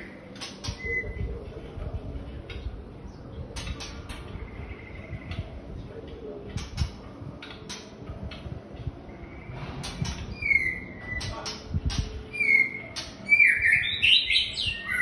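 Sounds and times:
clicks and taps on perches: 6.5s - 8.5s.

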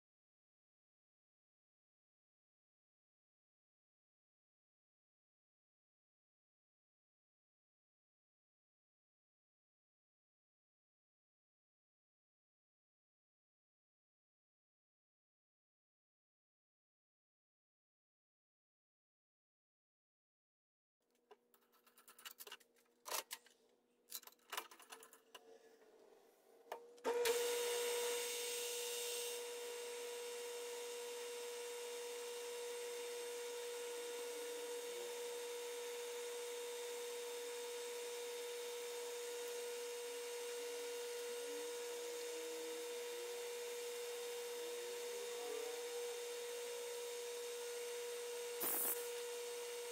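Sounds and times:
metal lathe whining: 27.1s - 49.9s
drill feeding into brass: 48.2s - 49.9s.

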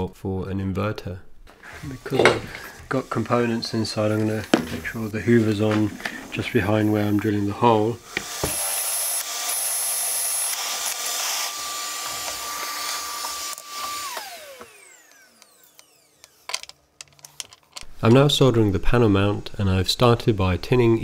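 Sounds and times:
vacuum cleaner whine: 1.6s - 16.6s
cordless drill boring: 7.4s - 16.8s.

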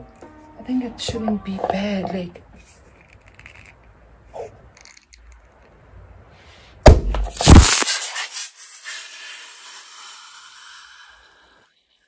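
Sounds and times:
loud bang: 6.8s - 7.8s
hiss of sparkling wine: 7.8s - 11.7s.

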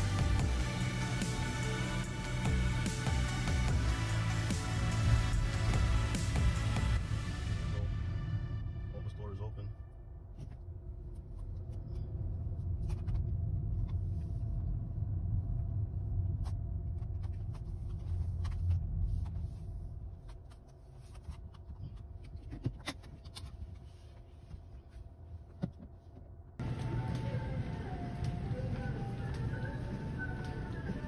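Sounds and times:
car engine and tyre rumble: 10.3s - 21.8s.

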